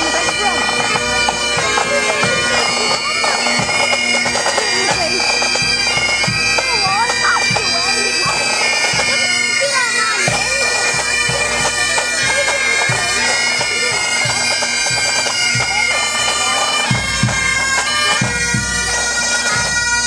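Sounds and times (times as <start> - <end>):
bagpipes playing: 0.0 - 20.0
drum beating: 0.0 - 20.0.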